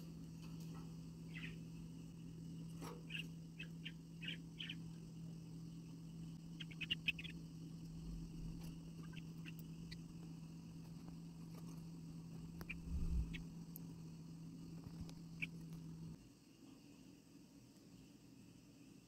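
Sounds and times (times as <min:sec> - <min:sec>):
steady low hum: 0:00.0 - 0:16.2
budgerigars chirping: 0:06.6 - 0:07.4.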